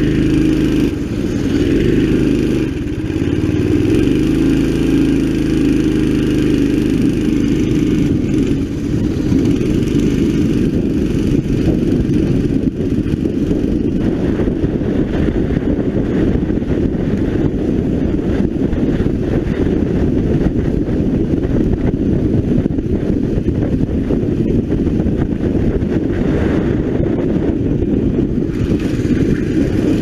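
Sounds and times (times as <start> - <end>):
kart engine accelerating: 0.0 - 20.6, 27.4 - 30.0
wind buffeting microphone: 0.0 - 30.0.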